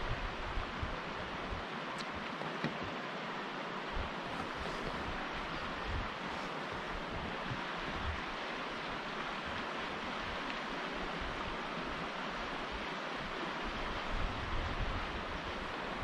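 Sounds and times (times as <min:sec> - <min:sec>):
rushing wind: 0:00.0 - 0:16.0
wind gusts buffeting microphone: 0:03.9 - 0:16.0.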